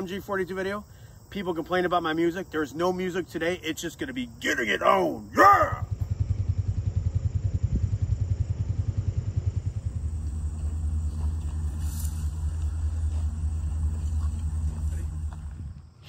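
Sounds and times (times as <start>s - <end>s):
vehicle engine idling: 5.5s - 16.0s.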